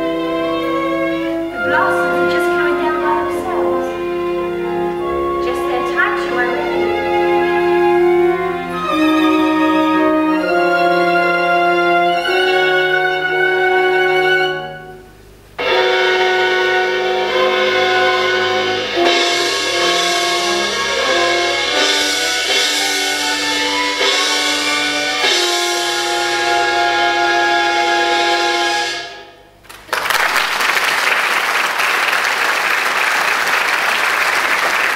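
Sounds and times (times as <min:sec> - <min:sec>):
orchestra playing held chords: 0:00.0 - 0:29.6
audience applause: 0:29.7 - 0:34.9.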